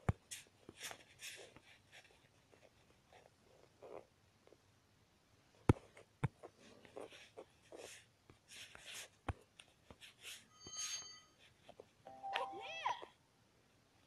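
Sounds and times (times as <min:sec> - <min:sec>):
stylus scratching on screen: 0:05.8 - 0:12.0
bell-like chime: 0:10.5 - 0:11.4, 0:12.1 - 0:12.7.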